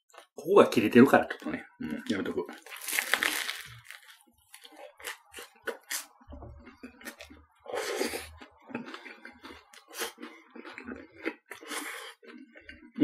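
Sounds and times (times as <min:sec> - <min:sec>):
close chewing with mouth clicks: 0:01.8 - 0:13.0
crusty bread crackling when bitten: 0:02.0 - 0:06.2.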